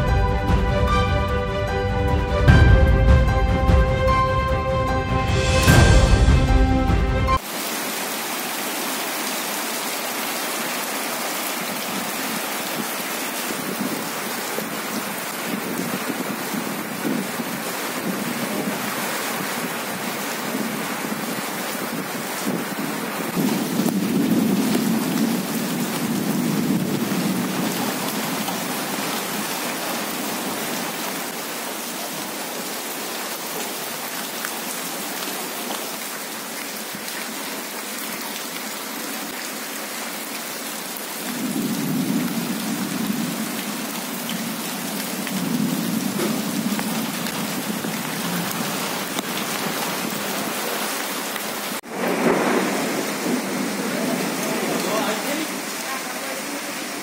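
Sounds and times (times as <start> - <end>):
low rumbling: 0.0 - 7.4
heavy rain pouring: 0.0 - 57.0.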